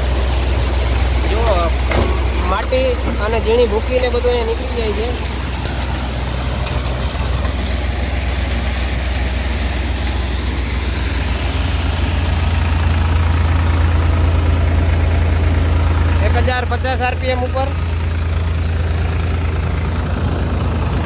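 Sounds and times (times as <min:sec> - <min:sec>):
thresher rattling: 0:00.0 - 0:13.6
tractor diesel engine running: 0:00.0 - 0:21.0.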